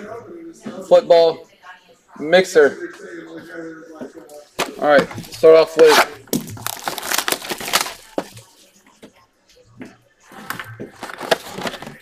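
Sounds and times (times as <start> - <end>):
cardboard and wrapper rustling: 4.6 - 8.5, 10.4 - 12.0.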